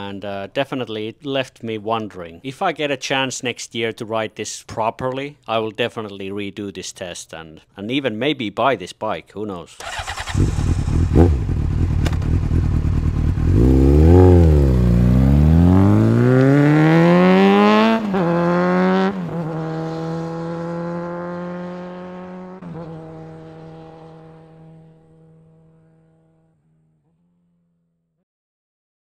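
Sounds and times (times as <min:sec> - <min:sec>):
motorcycle engine revving: 0:09.8 - 0:27.9.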